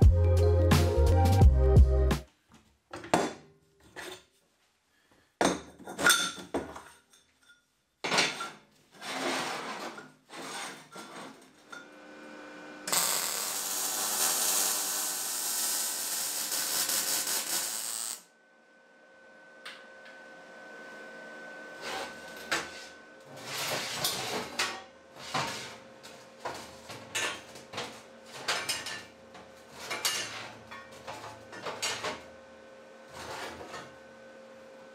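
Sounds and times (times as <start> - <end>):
welding arc crackling: 12.6 - 18.3.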